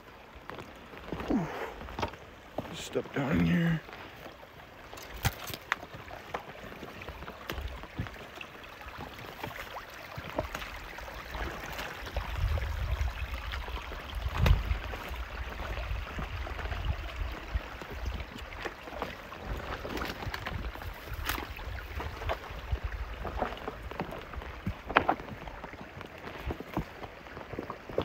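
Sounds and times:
footsteps on rocks: 0.4 - 12.2, 17.8 - 28.0
low rumble on microphone: 12.1 - 18.5.

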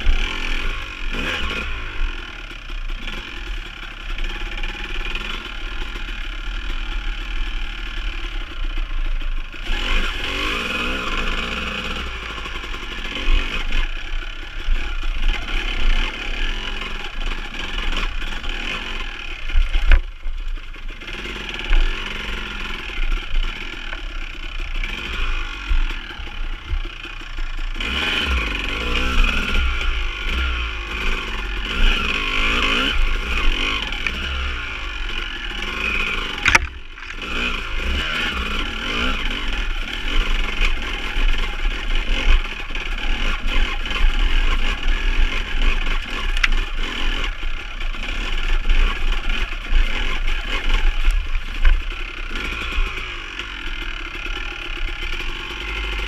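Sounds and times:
dirt bike engine revving: 0.0 - 56.0
clattering and scraping on rocks: 36.3 - 37.4.

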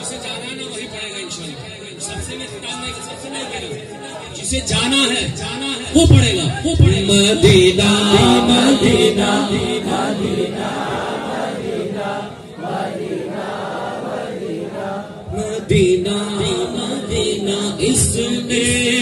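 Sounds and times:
man singing through loudspeakers: 0.0 - 12.6, 14.6 - 19.0
group of voices chanting: 8.2 - 15.6.

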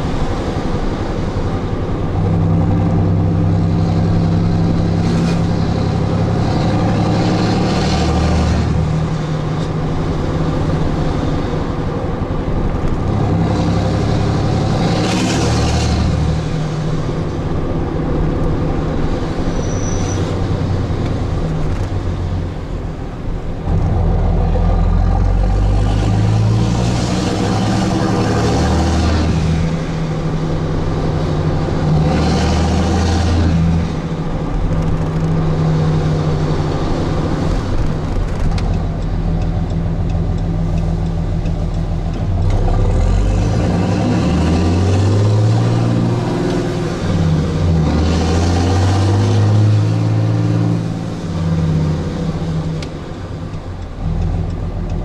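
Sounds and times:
diesel engine pulling through gears: 0.0 - 55.0.

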